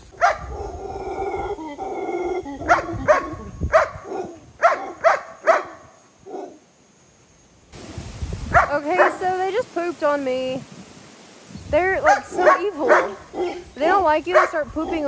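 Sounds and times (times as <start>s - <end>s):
dog barking: 0.2s - 0.8s, 2.6s - 6.6s, 8.5s - 9.2s, 12.0s - 13.7s, 14.3s - 15.0s.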